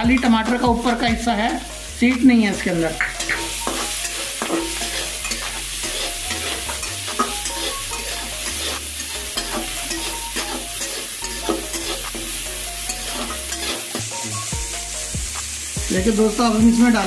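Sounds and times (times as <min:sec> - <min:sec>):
oil sizzling: 0:00.0 - 0:17.0
spatula scraping a steel pan: 0:03.1 - 0:14.1.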